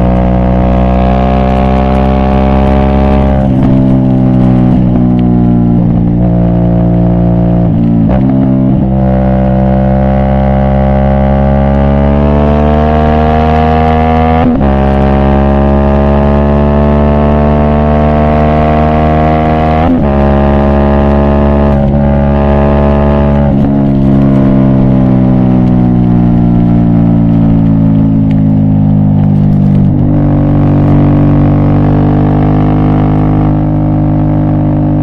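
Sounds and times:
motorcycle engine running: 0.0s - 35.0s.

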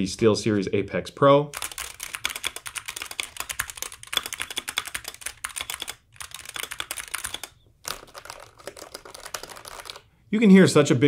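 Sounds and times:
fast keyboard typing: 1.6s - 10.1s.

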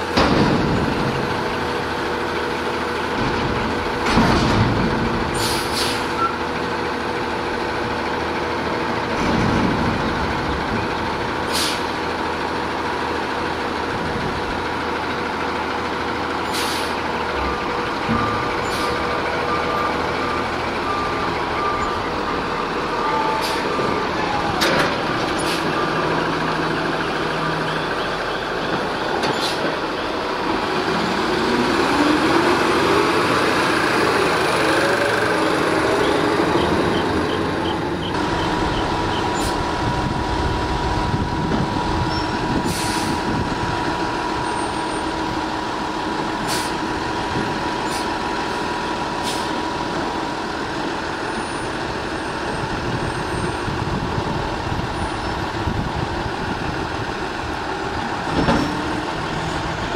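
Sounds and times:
garbage truck engine revving: 0.0s - 59.9s
truck moving with whine: 0.0s - 59.9s
short air hisses: 5.4s - 6.1s, 11.5s - 11.9s, 16.5s - 17.0s, 42.7s - 43.2s.

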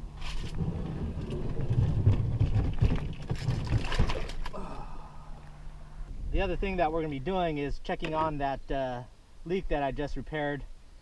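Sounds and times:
kayak hull bumping and scraping: 0.2s - 4.5s.

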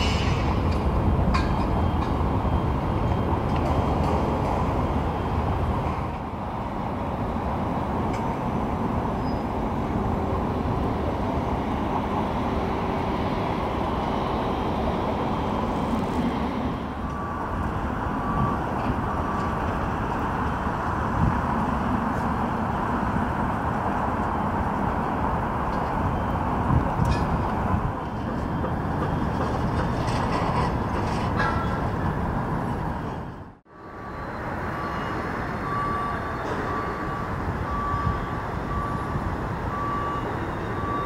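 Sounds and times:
faint engine whine: 0.0s - 29.4s
jet engines rumbling: 0.0s - 40.9s.

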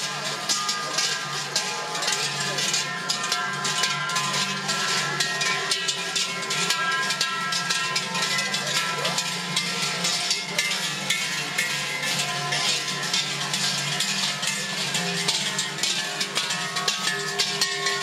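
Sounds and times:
large bells clanging: 0.0s - 18.0s.

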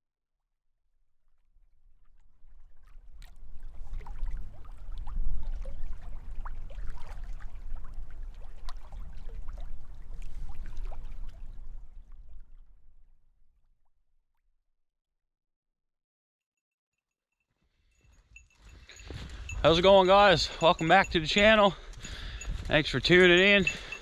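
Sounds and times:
small waves lapping and splashing: 2.2s - 12.8s.

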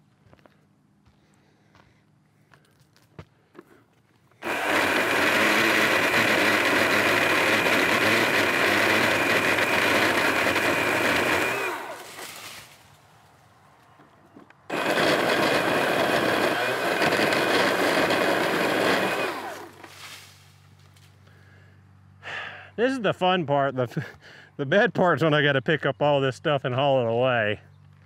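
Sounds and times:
chainsaw whining: 4.3s - 12.8s, 14.4s - 20.2s.

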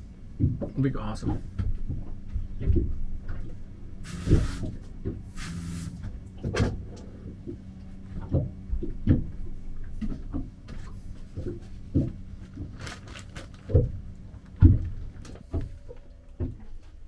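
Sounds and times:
faint steady hum: 0.0s - 17.0s
paper towel rustling: 10.8s - 14.0s
plastic zip bag rustling: 12.7s - 13.8s.

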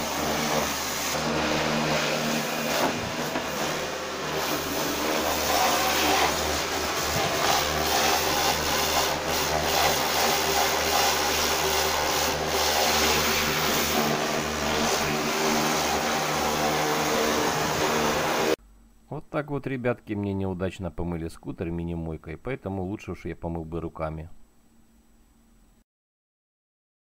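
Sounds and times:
pressure washer pump humming: 0.0s - 18.6s
water jet spraying: 0.0s - 18.6s.

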